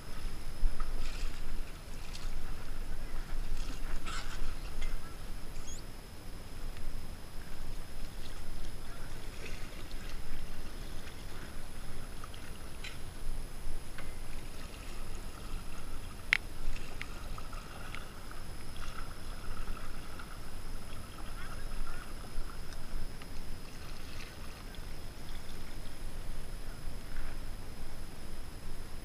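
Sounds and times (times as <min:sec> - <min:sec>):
water splashing against boat hull: 0:14.0 - 0:26.0.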